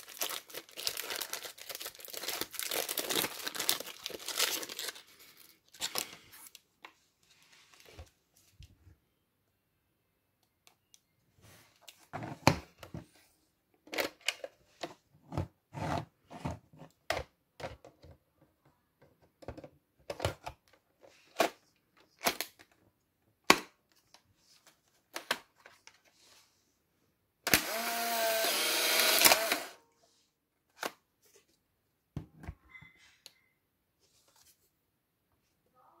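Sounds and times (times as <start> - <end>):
camera motor running: 27.5 - 29.8.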